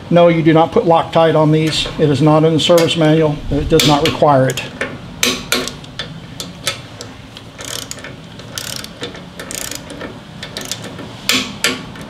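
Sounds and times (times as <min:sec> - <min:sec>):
torque wrench ratchet clicks: 0:07.0 - 0:10.9.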